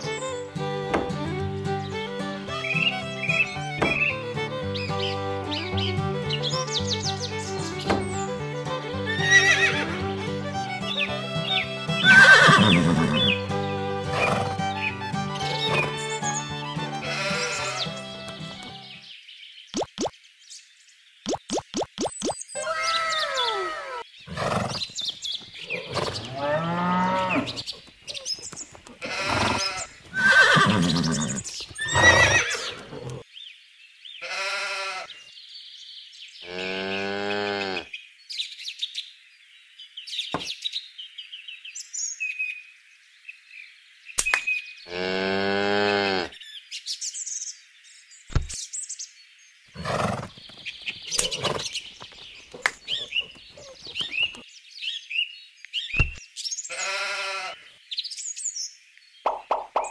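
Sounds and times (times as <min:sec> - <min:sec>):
birds chirping: 0:00.0 - 0:34.4, 0:35.0 - 0:59.9
farm animal calls: 0:08.9 - 0:10.2, 0:10.8 - 0:18.8, 0:22.6 - 0:33.2, 0:34.2 - 0:35.3, 0:49.8 - 0:54.4, 0:56.7 - 0:57.7
sheep bleating: 0:17.0 - 0:18.0, 0:29.0 - 0:31.3, 0:56.7 - 0:57.6
sharp clicks: 0:44.2 - 0:44.5.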